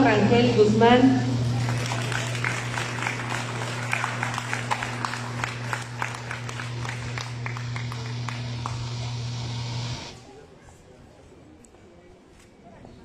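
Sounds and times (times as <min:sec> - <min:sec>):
low hum: 0:00.0 - 0:10.2
audience applauding: 0:01.4 - 0:10.0.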